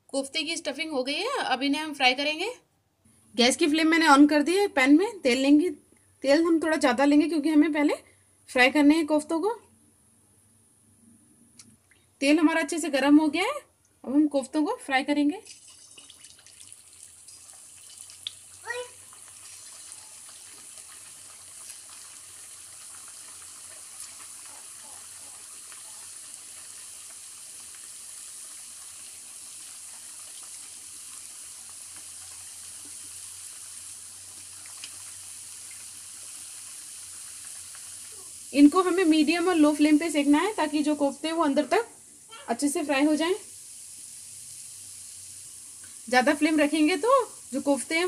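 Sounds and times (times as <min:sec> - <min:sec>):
food deep-frying in hot oil: 0:14.2 - 0:48.0.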